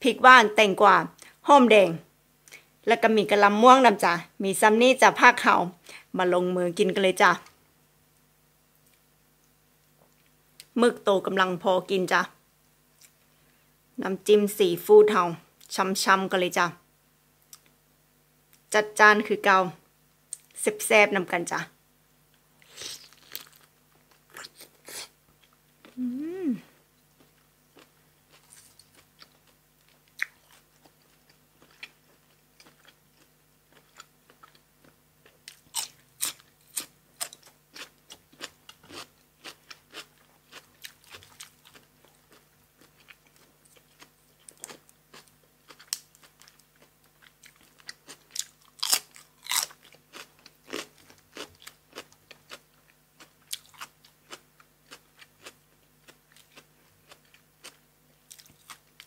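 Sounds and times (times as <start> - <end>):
close chewing and crunching: 22.6 - 26.2, 27.0 - 59.0.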